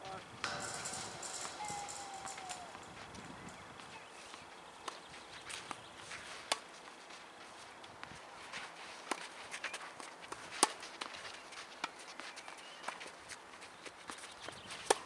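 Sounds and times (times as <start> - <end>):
footsteps scuffing on clay: 5.0 - 15.0.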